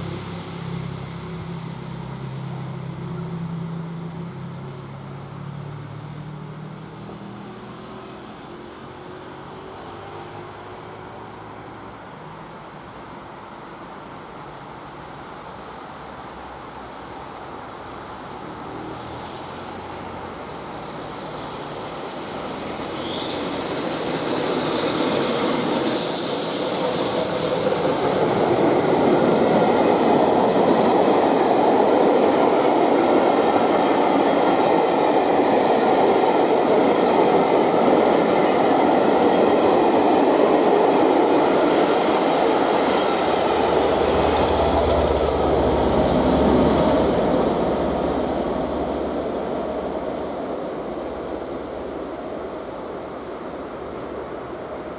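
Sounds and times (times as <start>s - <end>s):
steam locomotive passing: 0.0s - 54.9s
train wheels clattering: 21.4s - 31.6s, 34.1s - 49.1s
high wheel squeals: 22.4s - 28.6s.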